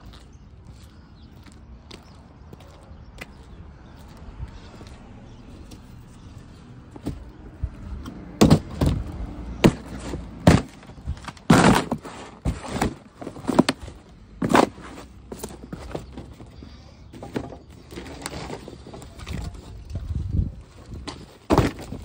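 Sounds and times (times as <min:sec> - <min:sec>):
boots stomping cardboard box: 0:08.4 - 0:16.2, 0:21.1 - 0:22.0.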